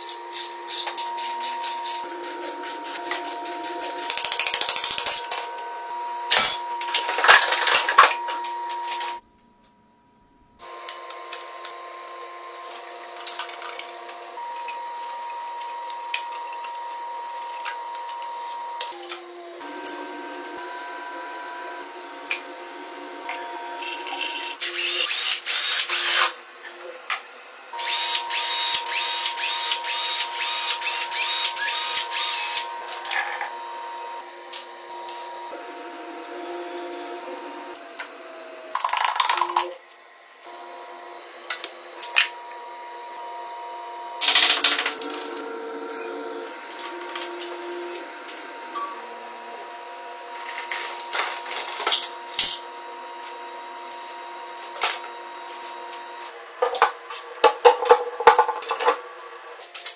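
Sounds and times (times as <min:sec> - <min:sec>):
cordless drill spinning: 0:23.8 - 0:26.3, 0:27.8 - 0:32.9.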